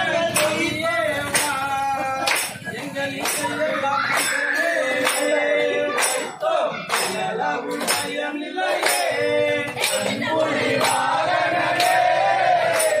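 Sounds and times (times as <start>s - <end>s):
man singing: 0.0s - 10.4s
sharp percussion beat: 0.0s - 13.0s.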